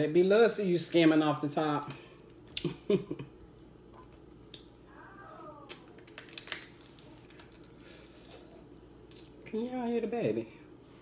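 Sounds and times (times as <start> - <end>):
crab shell cracking: 5.6 - 7.8.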